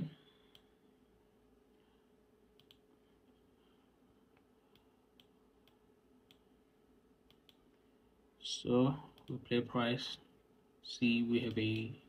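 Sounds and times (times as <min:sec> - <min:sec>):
computer mouse clicks: 0:02.6 - 0:03.0, 0:04.3 - 0:06.5, 0:07.2 - 0:07.7.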